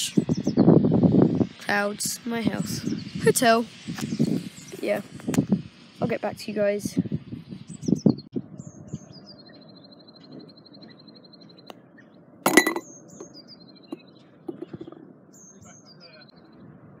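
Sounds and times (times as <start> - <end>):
songbird chirping and trilling: 0.0 - 17.0
putter striking golf ball: 12.5 - 12.9, 13.9 - 15.0.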